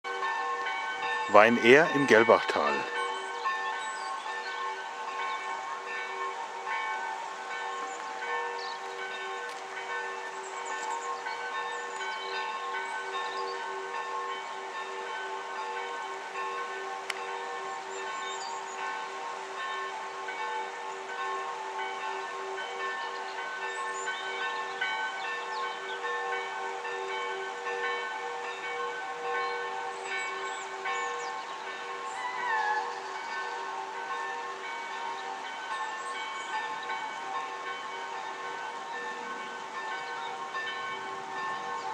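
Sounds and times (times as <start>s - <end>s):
church bells pealing: 0.1s - 41.9s.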